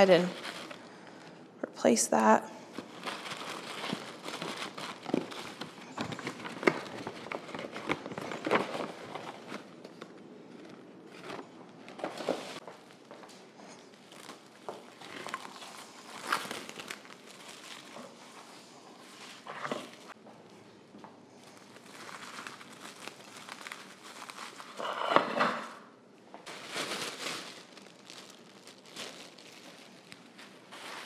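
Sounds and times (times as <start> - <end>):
tissue paper rustling: 0.0 - 0.8, 2.7 - 9.8, 13.9 - 20.2, 21.5 - 24.8, 26.5 - 31.0.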